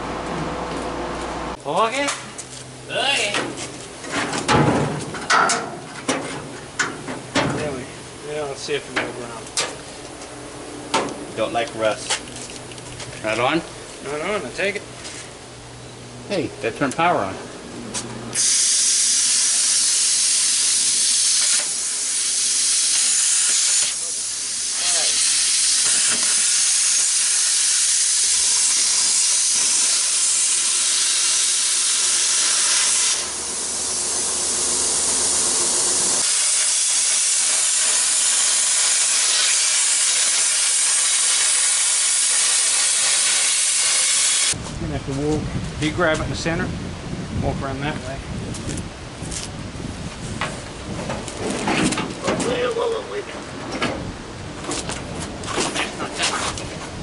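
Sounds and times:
plasma cutter hissing: 18.4s - 44.6s.

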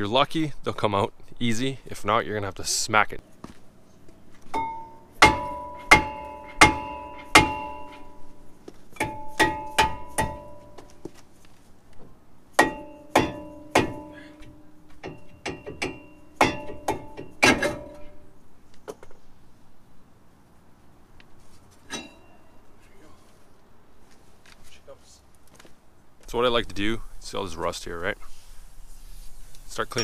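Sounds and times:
hammer ringing on metal rotor: 4.6s - 8.3s, 9.0s - 10.8s, 12.6s - 18.1s.

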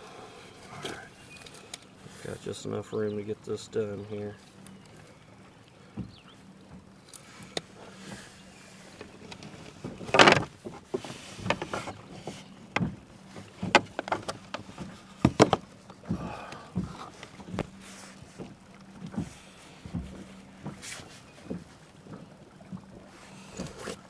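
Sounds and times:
knocks and clicks of handling gear: 5.9s - 7.7s, 8.9s - 22.8s.

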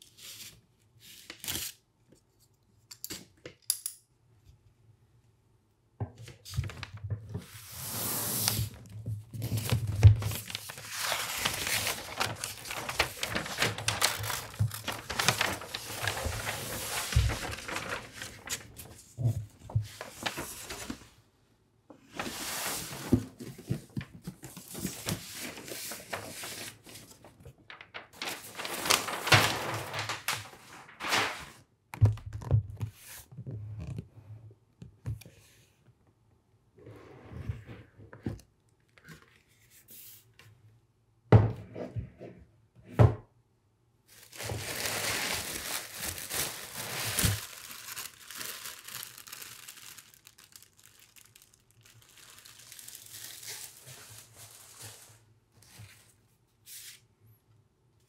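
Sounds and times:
wrapping paper rustling and crinkling: 6.4s - 21.2s, 22.1s - 31.6s, 44.1s - 56.9s.

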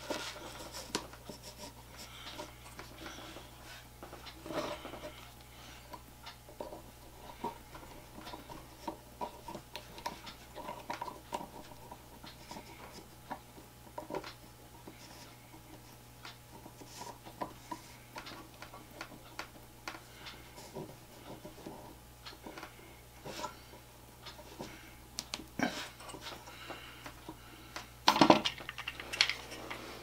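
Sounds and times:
small clicks and taps of chuck: 25.2s - 25.5s.

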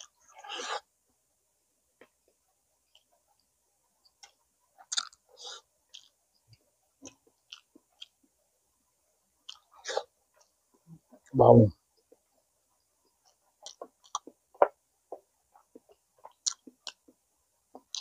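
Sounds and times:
chewing and mouth smacking: 4.1s - 5.3s, 5.9s - 8.2s, 9.4s - 9.8s, 13.1s - 14.4s, 15.6s - 17.2s, 17.8s - 18.0s.

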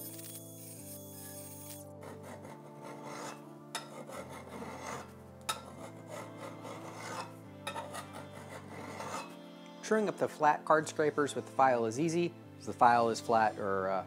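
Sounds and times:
hand file rasping on steel: 2.0s - 9.4s.

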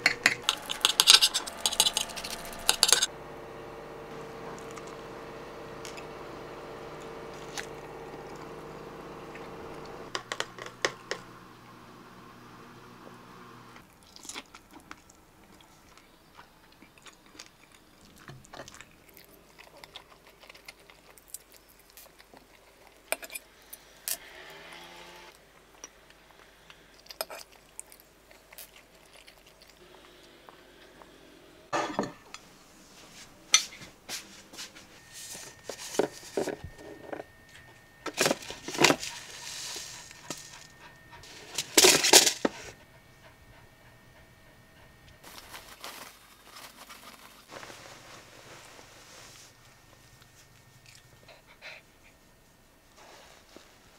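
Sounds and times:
dishes and utensils clinking: 0.0s - 3.1s, 31.8s - 32.5s
kitchenware clattering: 0.0s - 3.1s, 31.7s - 32.5s.

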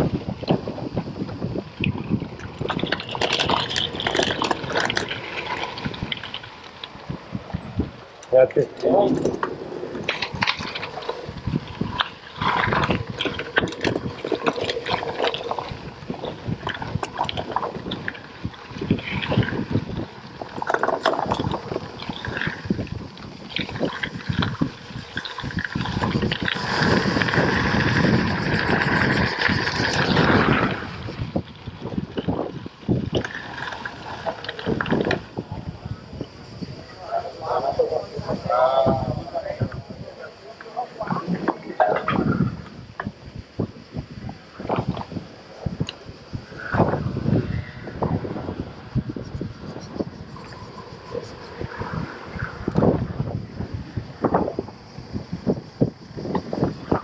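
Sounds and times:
bike tyres crunching on gravel: 0.0s - 36.2s
bike rattling and clicking: 0.0s - 36.3s
wind noise on microphone: 0.0s - 57.0s.

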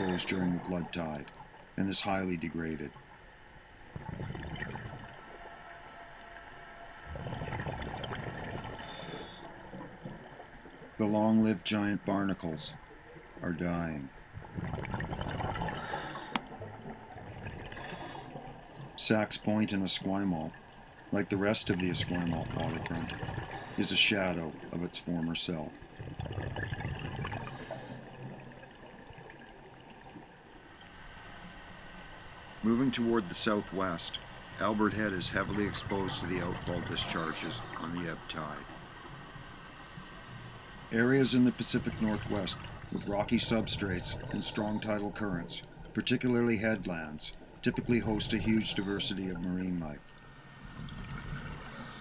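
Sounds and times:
underwater breath bubbling: 0.0s - 0.6s, 3.9s - 5.2s, 7.1s - 9.9s, 14.4s - 18.7s, 22.4s - 24.1s, 26.2s - 28.4s, 36.6s - 38.0s, 41.9s - 45.2s, 47.8s - 49.4s, 50.9s - 52.0s.

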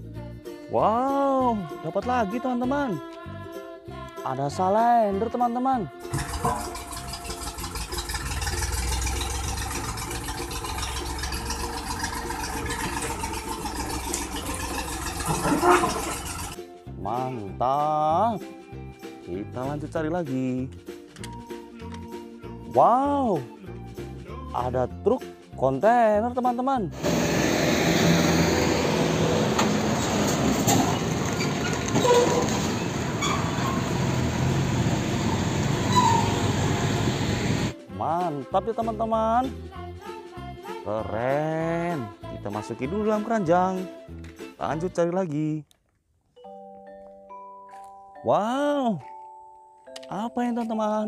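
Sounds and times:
road roller engine rumbling: 6.1s - 16.6s, 27.0s - 37.7s.

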